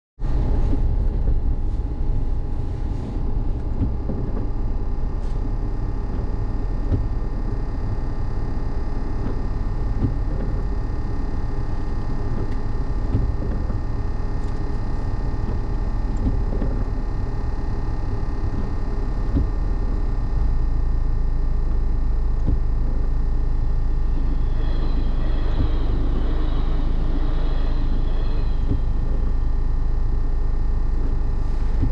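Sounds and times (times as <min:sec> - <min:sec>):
car engine idling: 0:00.2 - 0:31.9
steady higher tone: 0:19.0 - 0:31.9.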